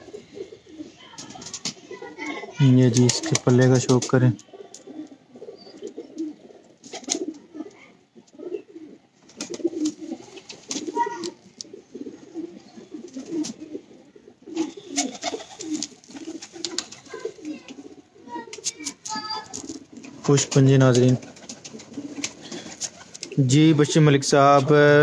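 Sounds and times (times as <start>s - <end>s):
pigeons cooing: 0.0s - 24.2s
rustles: 14.5s - 17.8s, 18.4s - 23.4s.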